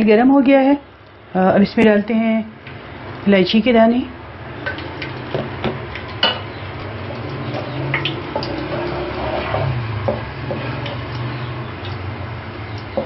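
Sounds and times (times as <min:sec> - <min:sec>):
spatula stirring seeds in oil: 0:04.8 - 0:12.0.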